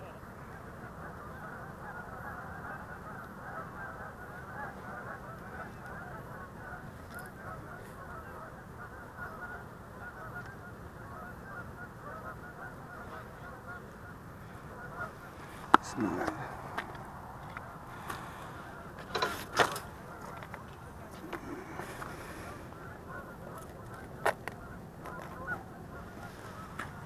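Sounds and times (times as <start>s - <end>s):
flock of geese honking: 0.0s - 27.0s
steady low rumble: 14.1s - 27.0s.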